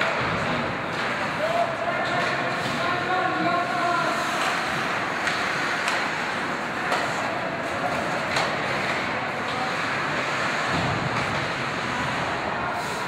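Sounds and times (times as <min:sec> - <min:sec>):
arena noise: 0:00.0 - 0:13.0
skates on ice: 0:00.0 - 0:13.0
sharp hockey stick clacks: 0:04.3 - 0:09.0.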